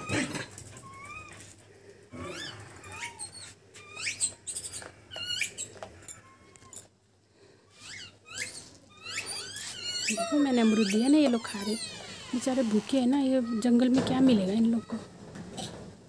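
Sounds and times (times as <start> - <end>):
monkeys squeaky calls: 2.2 - 6.8, 7.7 - 12.9.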